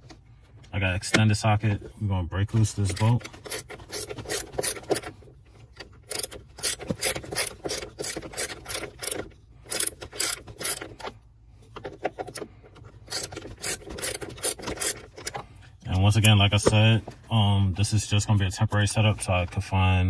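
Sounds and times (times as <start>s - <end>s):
ratchet wrench clicking: 2.9s - 5.1s, 6.1s - 11.1s, 13.1s - 15.4s.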